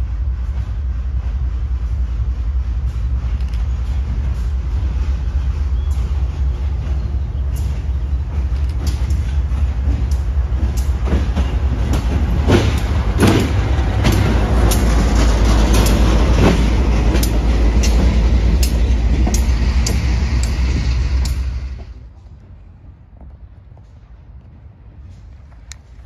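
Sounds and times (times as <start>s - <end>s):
locomotive engine rumble: 0.0s - 26.0s
wheels clicking over rail joints: 5.8s - 22.6s.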